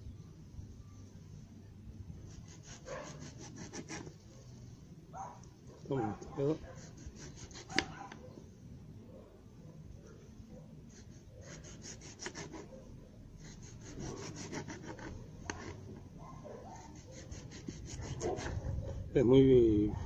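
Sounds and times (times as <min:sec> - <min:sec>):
knife sawing through tomato: 0:02.3 - 0:04.2, 0:06.4 - 0:08.0, 0:10.9 - 0:12.8, 0:13.4 - 0:15.8, 0:16.8 - 0:18.6.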